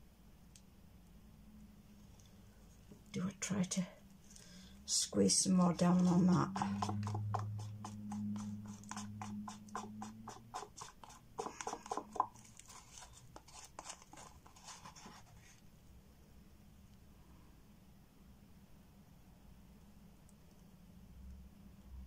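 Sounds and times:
stick scraping inside paper cup: 5.7 - 15.6.

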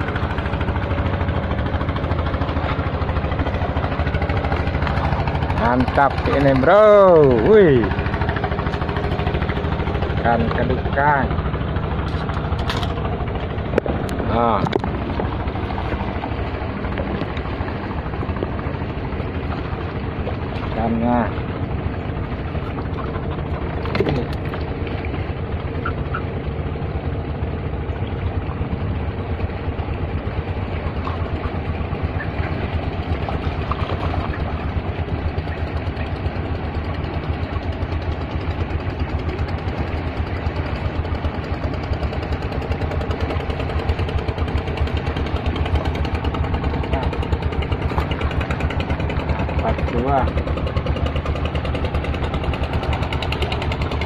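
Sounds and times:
engine running: 0.0 - 54.0.

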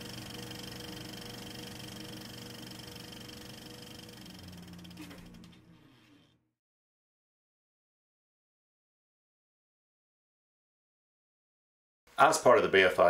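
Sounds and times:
whirring hum: 0.0 - 6.4.

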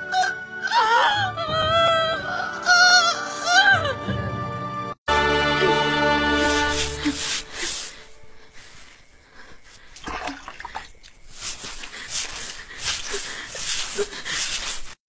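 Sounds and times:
wet cloth scrubbing tiled floor: 6.3 - 15.0
water splashing in plastic bucket: 10.0 - 11.2.

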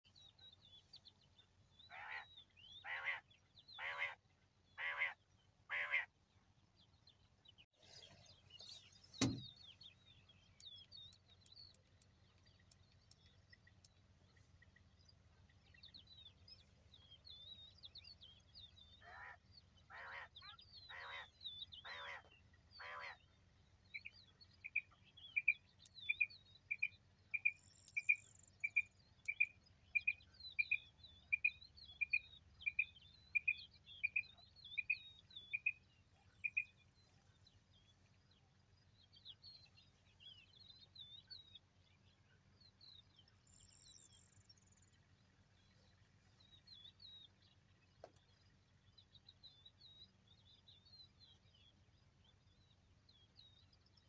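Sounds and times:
small birds chirping: 0.1 - 54.0
quail calling harshly: 1.9 - 2.2, 2.8 - 3.2, 3.8 - 4.2, 4.8 - 6.1, 19.0 - 20.3, 20.9 - 23.2
sharp click: 9.2 - 9.5.

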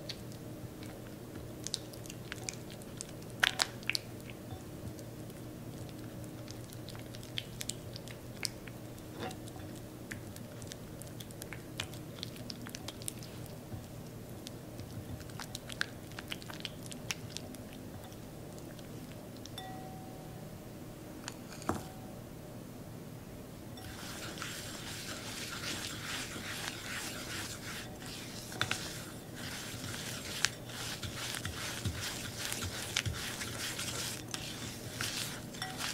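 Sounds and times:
faint low hum: 0.0 - 35.9
spatula squishing butter: 9.4 - 19.2, 23.8 - 35.9.

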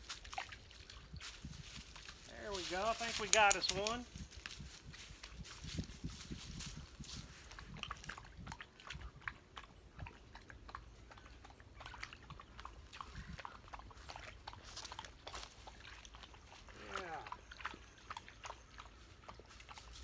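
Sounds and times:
dog lapping water: 0.0 - 2.2, 7.2 - 20.0.

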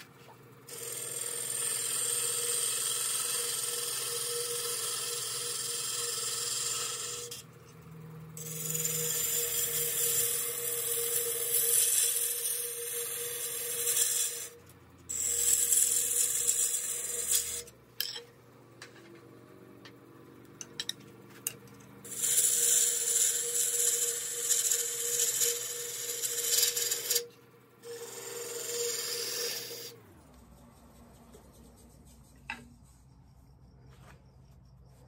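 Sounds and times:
wood lathe humming: 0.7 - 7.4, 8.4 - 17.7, 22.1 - 30.2.

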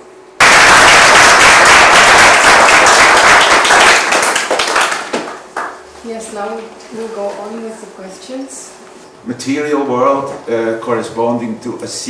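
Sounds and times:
audience applauding: 0.4 - 5.8.

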